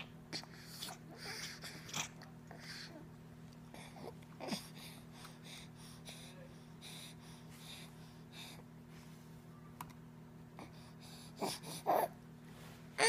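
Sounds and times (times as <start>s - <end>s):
baby breathing softly: 3.6s - 9.1s, 10.6s - 12.0s
baby whimpering: 11.4s - 12.2s.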